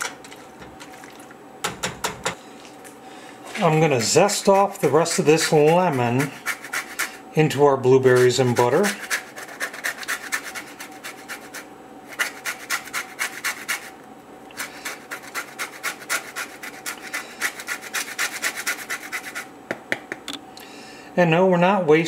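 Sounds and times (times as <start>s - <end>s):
grater scraping lemon rind: 3.6s - 7.2s, 7.9s - 13.9s, 14.5s - 19.5s.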